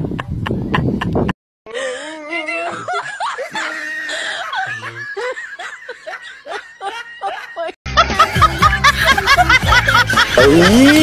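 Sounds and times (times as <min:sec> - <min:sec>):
people laughing and giggling: 0:02.4 - 0:11.0.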